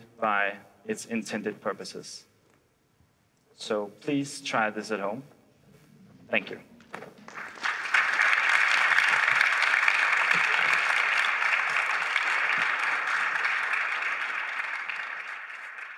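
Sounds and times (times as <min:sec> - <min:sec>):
audience applauding: 0:06.9 - 0:15.9.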